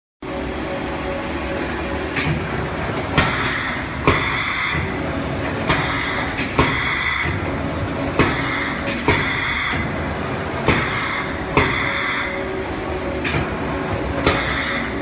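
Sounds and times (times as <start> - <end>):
steady machine hum: 0.2 - 15.0
machine clacks: 2.1 - 15.0.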